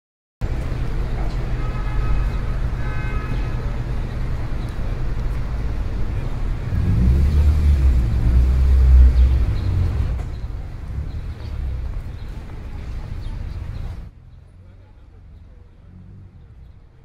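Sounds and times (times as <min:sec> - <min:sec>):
low rumble of street traffic: 0:00.4 - 0:17.0
vehicle passing: 0:03.6 - 0:16.7.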